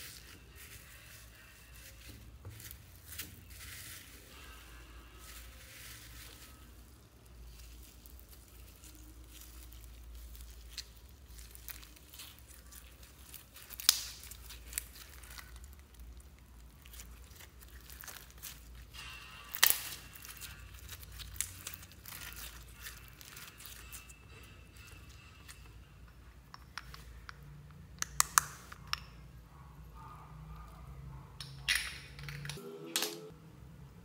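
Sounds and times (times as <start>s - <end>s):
foam beads crackling: 0.0s - 25.8s.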